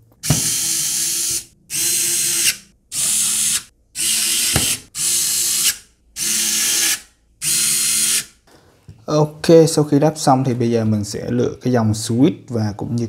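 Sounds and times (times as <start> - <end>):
electric screwdriver driving screws: 0.2 - 8.3.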